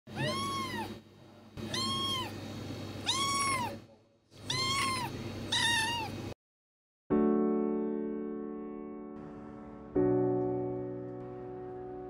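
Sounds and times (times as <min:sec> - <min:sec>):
kitten meowing: 0:00.1 - 0:01.0, 0:01.6 - 0:02.4, 0:03.0 - 0:03.8, 0:04.4 - 0:06.2.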